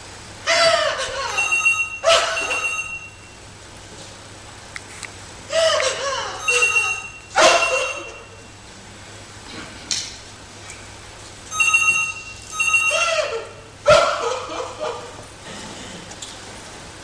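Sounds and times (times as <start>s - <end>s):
woman sobbing: 0.5s - 2.5s, 5.5s - 7.0s
telephone ringing: 1.4s - 3.4s, 6.4s - 8.5s, 11.5s - 13.3s.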